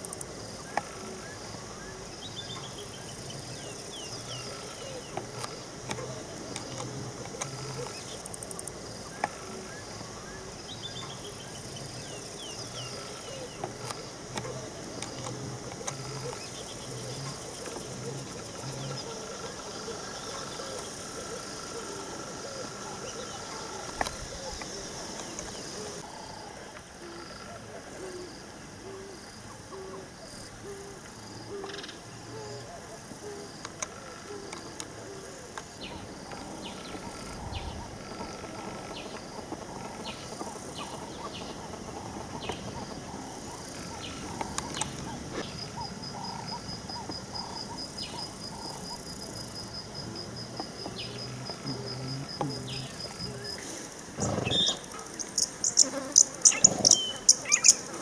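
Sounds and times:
insects chirping and buzzing: 0.0 - 58.0
low evenly spaced calls: 31.6 - 58.0
fast insect trill: 50.9 - 58.0.

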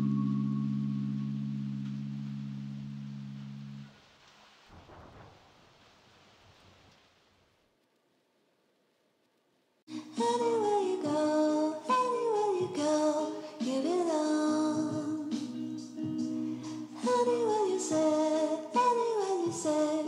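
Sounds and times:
song with singing: 9.9 - 20.0.

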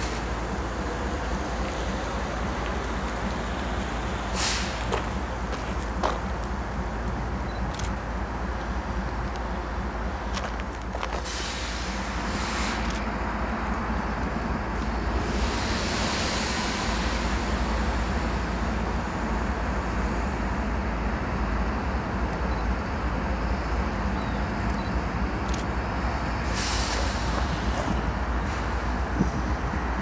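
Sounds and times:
diesel locomotive engine rumble: 0.0 - 30.0
brief air hisses: 4.3 - 5.0, 11.2 - 13.0, 26.4 - 28.9.

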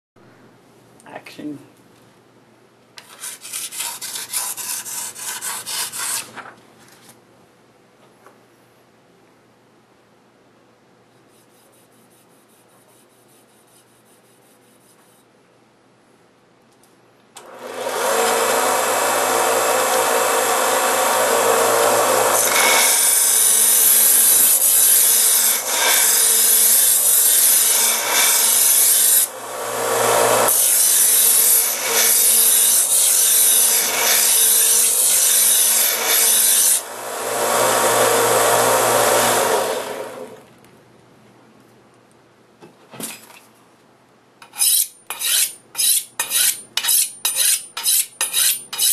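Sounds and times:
electric knife sharpener grinding: 17.4 - 40.4.

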